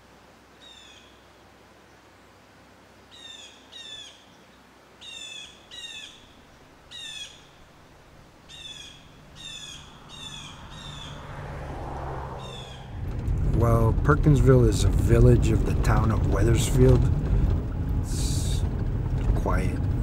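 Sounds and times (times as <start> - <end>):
bird calling: 5.0 - 13.0
low rumble: 8.0 - 20.0.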